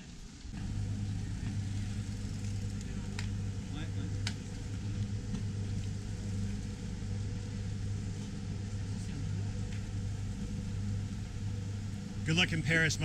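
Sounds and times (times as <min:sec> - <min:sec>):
engine idling: 0:00.5 - 0:13.0.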